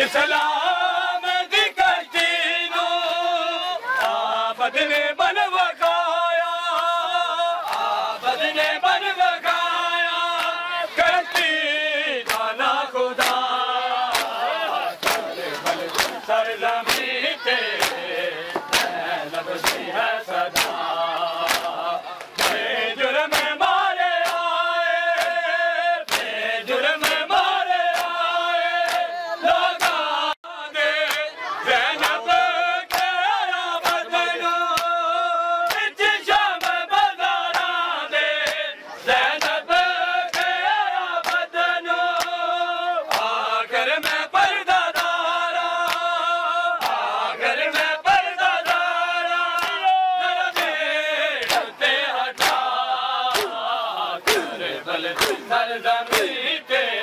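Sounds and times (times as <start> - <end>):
men chanting in unison: 0.0 - 57.0
hands slapping bare chests: 3.9 - 4.3, 7.6 - 8.0, 10.3 - 10.6, 12.2 - 14.4, 15.0 - 22.7, 23.3 - 29.1, 29.7 - 30.1, 31.0 - 31.3, 31.9 - 32.2, 32.8 - 37.8, 38.4 - 38.7, 39.3 - 41.5, 42.1 - 42.5, 43.1 - 44.3, 44.9 - 46.2, 46.8 - 50.8, 51.4 - 56.5.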